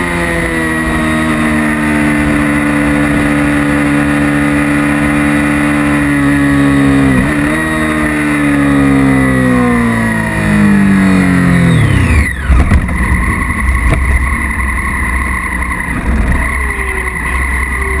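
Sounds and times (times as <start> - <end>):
low rumble of rolling motorcycle: 0.0 - 18.0
motorcycle engine slowing down: 0.0 - 18.0.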